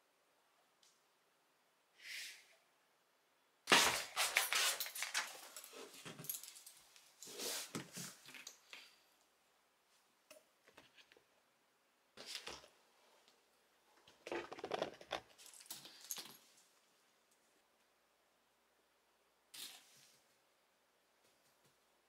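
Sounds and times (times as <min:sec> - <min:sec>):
dog harness rustling and clinking: 0:04.2 - 0:06.8, 0:15.3 - 0:16.6.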